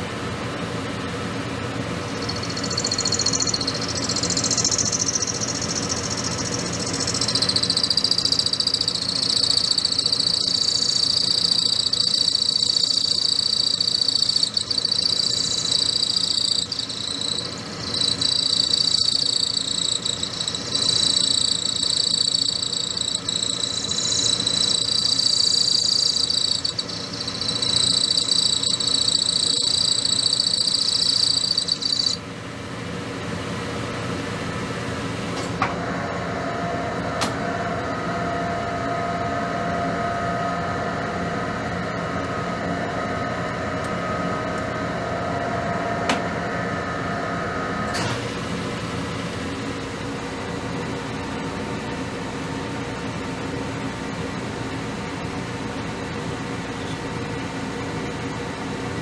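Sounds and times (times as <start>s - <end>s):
lathe humming: 2.1s - 32.2s
cutting tool squealing: 2.2s - 32.2s.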